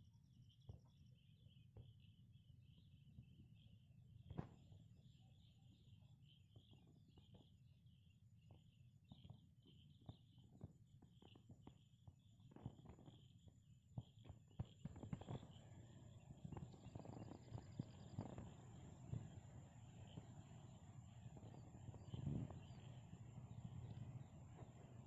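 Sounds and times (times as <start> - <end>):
bird chirps: 14.0 - 25.0.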